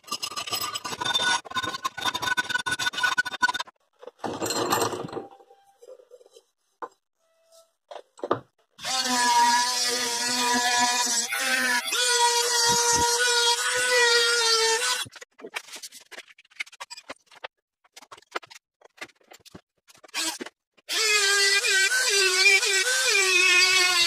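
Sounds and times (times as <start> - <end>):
rotary tool grinding metal: 0.0 - 3.7, 8.8 - 15.3, 20.0 - 24.0.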